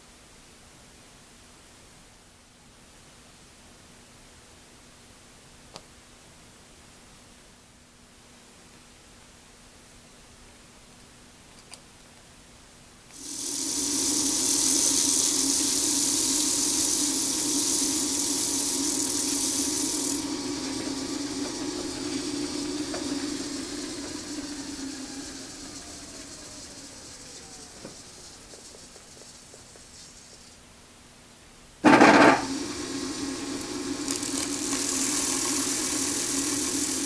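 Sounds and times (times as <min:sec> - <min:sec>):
spindle coasting down whine: 0:13.1 - 0:30.6, 0:31.9 - 0:37.0
lathe spindle hiss and hum: 0:13.1 - 0:30.7, 0:31.8 - 0:37.0.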